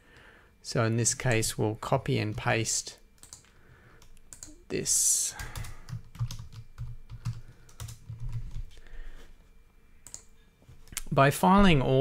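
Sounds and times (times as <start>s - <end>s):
typing on computer keyboard: 3.2s - 4.6s, 5.4s - 8.7s, 10.0s - 10.3s.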